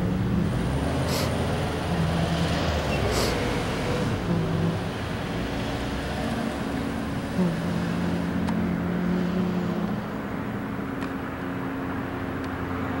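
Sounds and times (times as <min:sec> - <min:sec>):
cars passing close: 0:00.0 - 0:13.0
low steady hum: 0:06.2 - 0:13.0.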